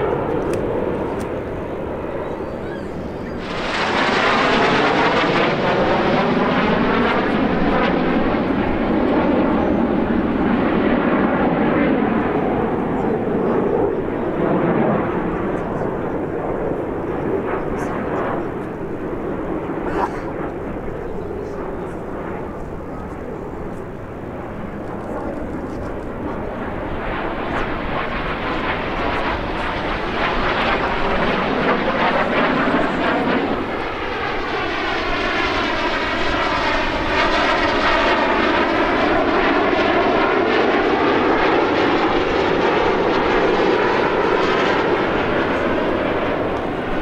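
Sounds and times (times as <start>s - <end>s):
jets flying past: 0.0s - 47.0s.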